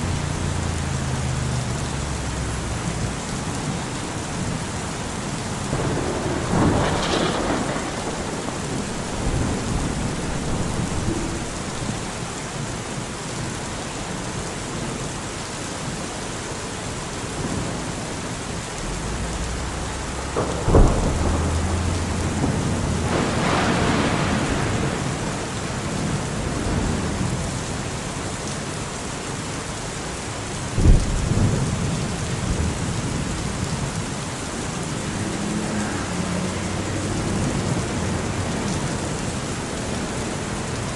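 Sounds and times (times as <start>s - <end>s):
steady rain: 0.0s - 40.9s
thunder rumbling: 2.2s - 12.3s, 18.8s - 27.8s, 30.7s - 40.9s
sharp thunderclaps: 5.7s - 12.0s, 20.1s - 27.0s, 30.8s - 33.2s.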